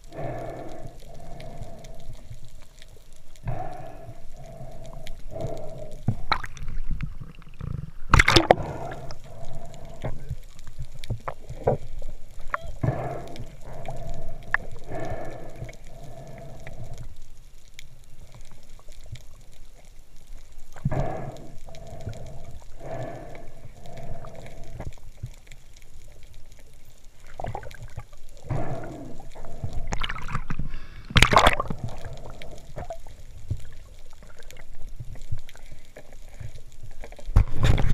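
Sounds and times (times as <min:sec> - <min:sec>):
water gurgling and bubbling: 0:06.2 - 0:10.4, 0:27.2 - 0:35.0.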